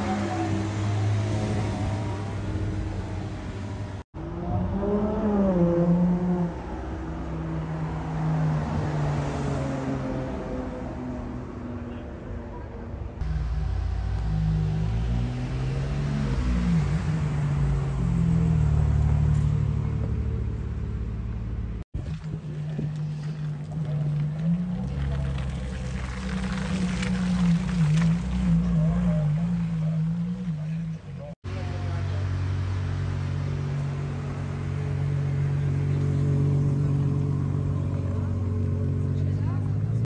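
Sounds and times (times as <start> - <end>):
car engine pulling away: 13.2 - 40.0.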